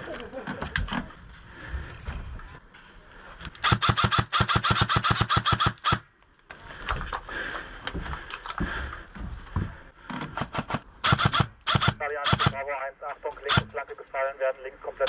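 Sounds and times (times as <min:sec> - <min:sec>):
airsoft rifle rapid fire: 0:03.6 - 0:06.1, 0:10.4 - 0:12.6, 0:13.5 - 0:13.7.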